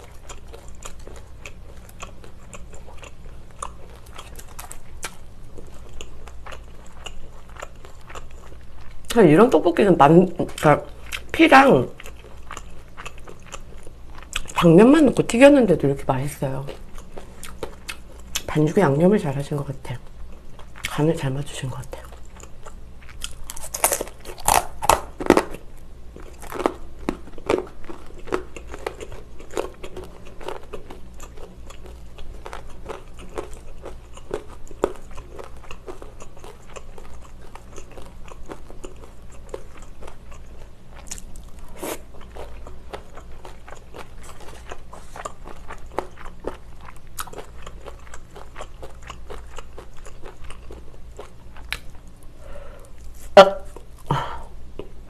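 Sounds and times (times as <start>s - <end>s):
crunchy snack chewing: 0.0s - 9.0s, 12.0s - 14.6s, 22.0s - 52.3s.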